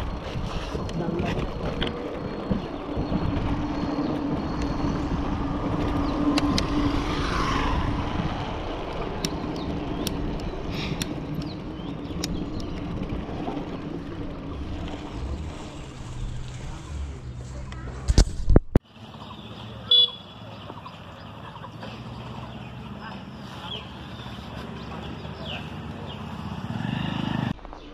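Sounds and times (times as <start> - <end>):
bike tyres on brick road: 0.0 - 27.9
bike clicks: 5.7 - 6.9, 8.8 - 15.0.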